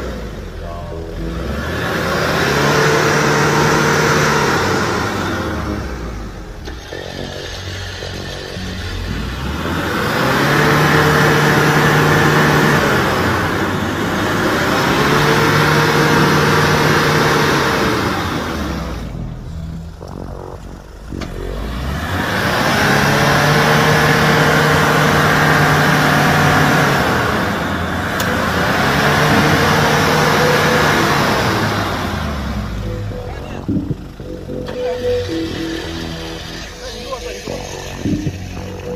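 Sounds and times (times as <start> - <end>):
engine revving hard: 0.0 - 38.9.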